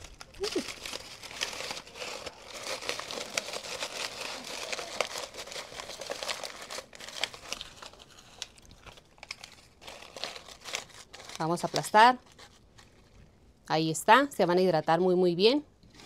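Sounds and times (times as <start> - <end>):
dry corn husks crackling: 0.0 - 12.5.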